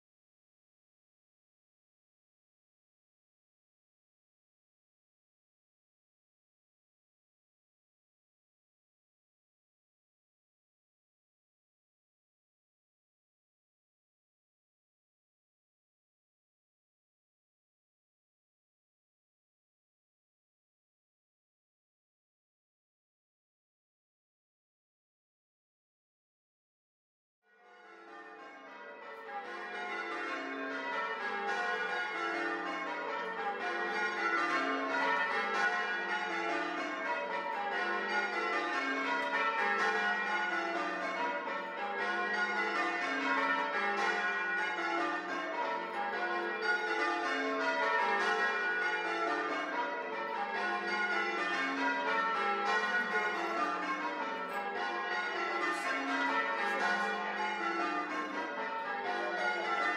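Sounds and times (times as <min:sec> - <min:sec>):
church bells ringing changes: 0:27.6 - 0:59.9.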